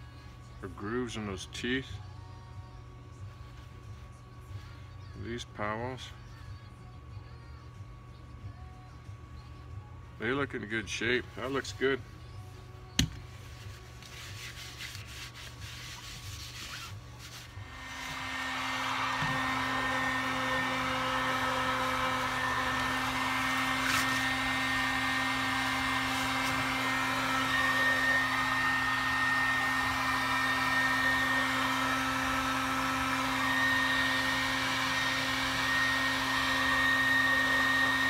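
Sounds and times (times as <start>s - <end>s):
heat gun fan blowing: 10.2s - 38.0s.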